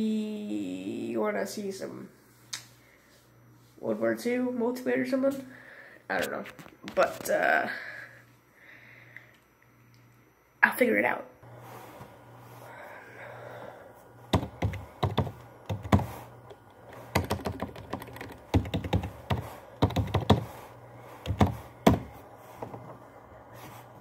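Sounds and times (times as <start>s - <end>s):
steady low hum: 0.0s - 24.0s
laptop keyboard typing: 14.3s - 22.1s.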